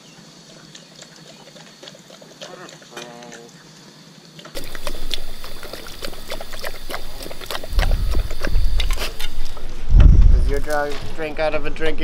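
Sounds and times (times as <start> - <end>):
dog lapping water: 0.5 - 3.0, 4.6 - 9.8
water trickling: 4.6 - 9.7
low rumble: 6.8 - 12.0.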